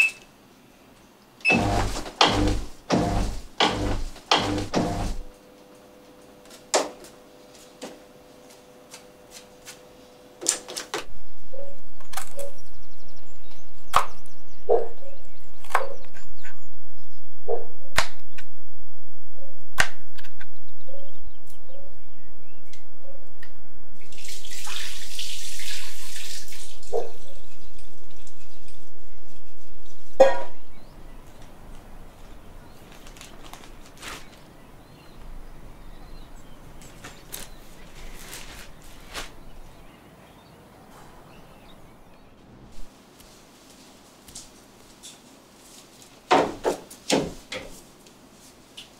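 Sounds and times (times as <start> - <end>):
tap running: 1.5 - 5.3.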